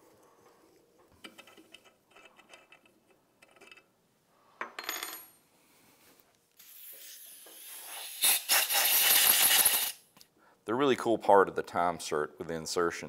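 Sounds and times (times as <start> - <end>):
hiss: 6.6 - 10.0.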